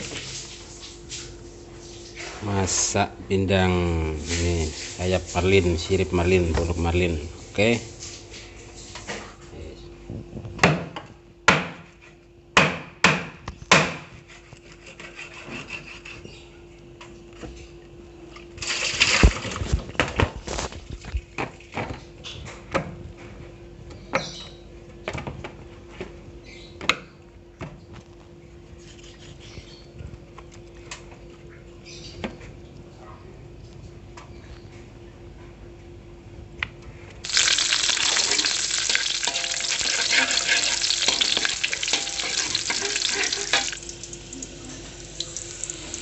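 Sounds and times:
knocks on cutting board: 10.6 - 11.8, 12.6 - 14.1
knife scraping: 14.1 - 16.5, 28.8 - 29.8, 39.2 - 43.8
faint steady hum: 14.2 - 46.0.

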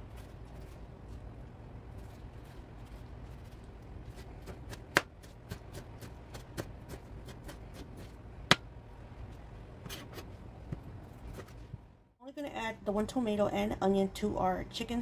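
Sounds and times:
knife chopping on cutting board: 4.4 - 8.6.

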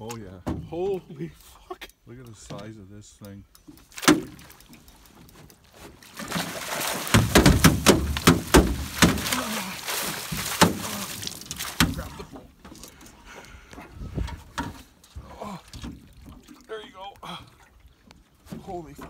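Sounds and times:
fish thrashing and water splashing: 3.7 - 13.8
knocks against boat hull: 7.1 - 9.3.

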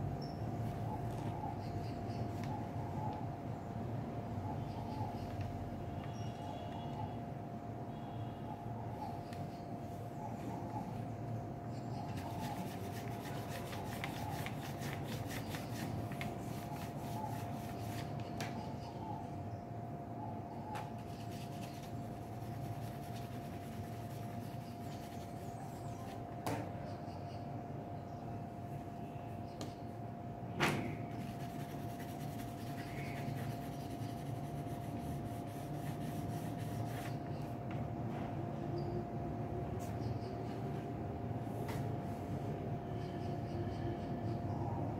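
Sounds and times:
steady background hum: 0.0 - 44.9
pencil scratching on paper: 12.2 - 18.1, 21.0 - 25.5, 31.1 - 37.2.

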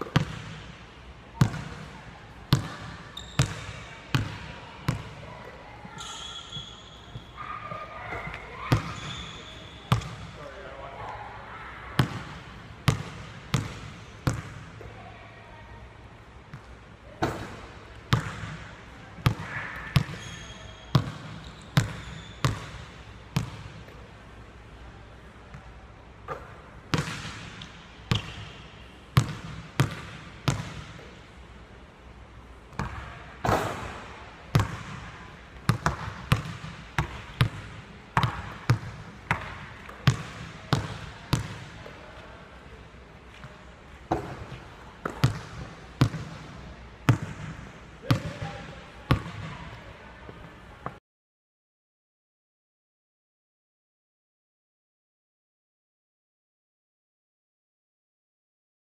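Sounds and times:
basketball bouncing on wooden floor: 38.2 - 41.7, 44.1 - 46.4.

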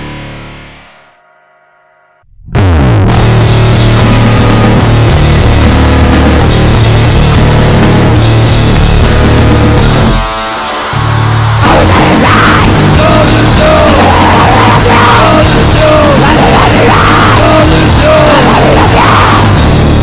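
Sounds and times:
hardcore punk song: 2.5 - 20.0
yelled vocals: 11.0 - 20.0.

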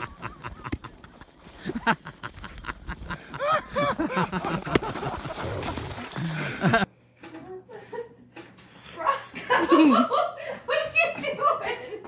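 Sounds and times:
paws crunching on snow: 0.0 - 6.8.

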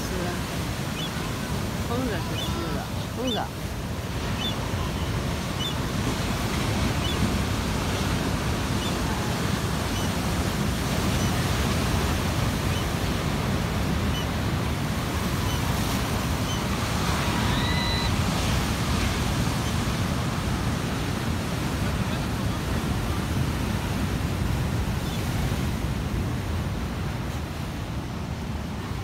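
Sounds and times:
high whistle-like tone: 17.5 - 18.1.

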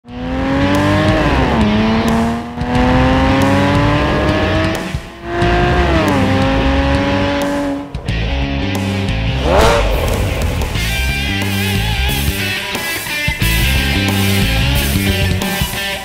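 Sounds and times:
car engine accelerating: 0.0 - 12.8, 13.4 - 15.4.

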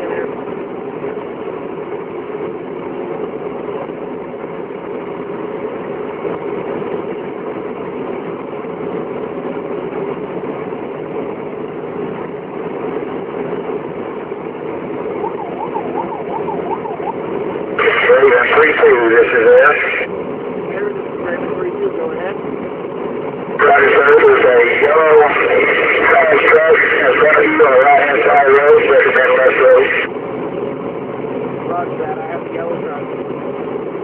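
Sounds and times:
vehicle engine and road noise: 0.0 - 34.0
faint yelping siren: 15.0 - 18.6.

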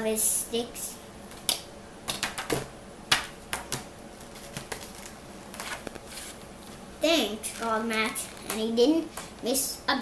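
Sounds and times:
book pages turning: 4.2 - 6.8.

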